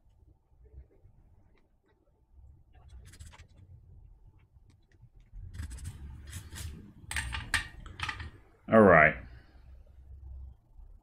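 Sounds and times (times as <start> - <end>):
circuit board scratching and rubbing: 2.7 - 4.5, 5.3 - 7.5
soldering iron scraping: 5.6 - 7.6.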